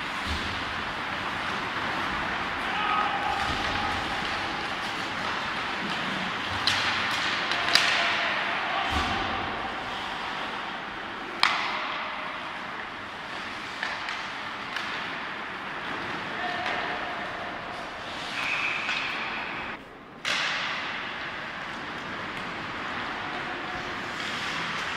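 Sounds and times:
stick hitting puck: 0.0s - 10.6s, 11.3s - 19.6s, 20.2s - 22.9s
skates scraping on ice: 0.0s - 24.9s.

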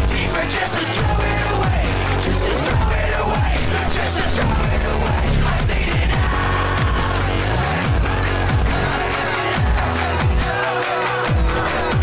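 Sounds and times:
deep sliding bass hits: 1.0s - 9.1s.

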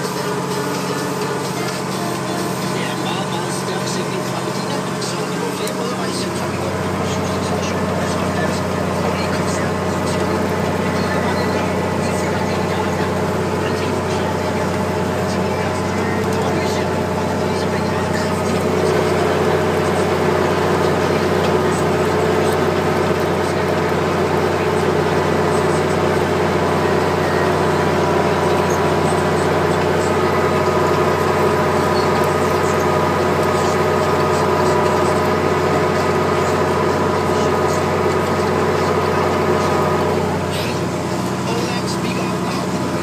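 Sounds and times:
tractor diesel engine running: 0.0s - 43.0s.

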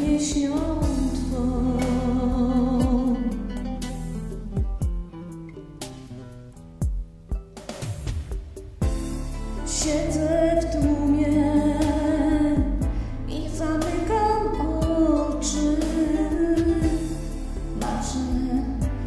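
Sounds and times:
person singing: 0.0s - 3.9s, 9.7s - 19.0s
acoustic guitar: 0.0s - 19.0s.

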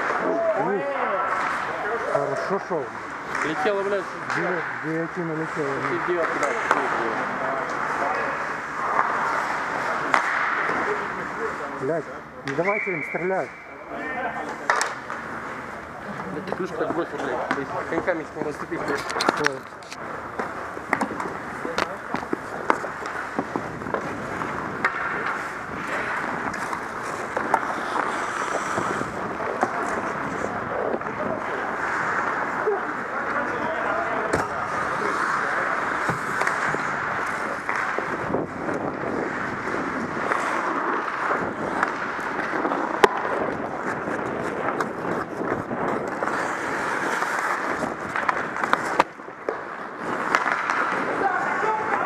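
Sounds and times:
skate blades scraping ice: 2.8s - 11.8s, 16.4s - 52.0s
hockey stick clicks: 10.0s - 10.8s, 14.6s - 15.2s, 18.7s - 24.2s, 24.8s - 30.0s, 34.3s - 38.9s, 40.2s - 51.2s.

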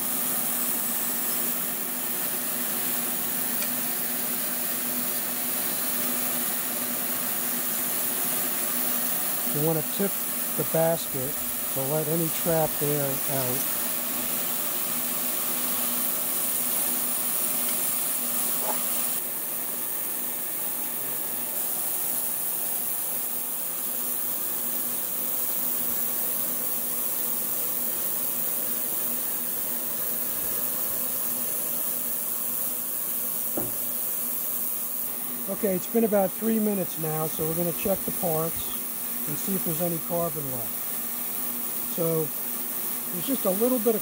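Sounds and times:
ultrasonic cleaning tank hiss: 0.0s - 44.0s.

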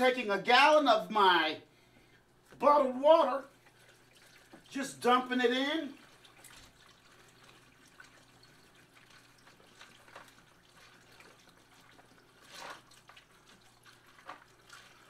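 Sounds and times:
water pouring into ice: 3.1s - 15.0s.

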